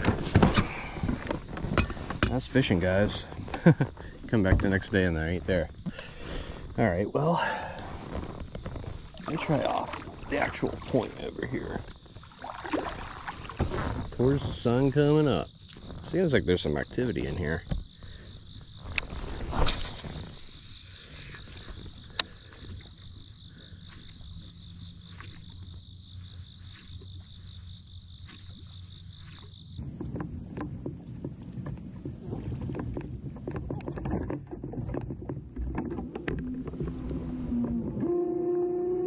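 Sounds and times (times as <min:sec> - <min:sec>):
crickets chirping: 0:00.0 - 0:39.0
water sloshing: 0:07.7 - 0:15.0, 0:19.0 - 0:38.0
kayak knocking on water: 0:28.3 - 0:38.1.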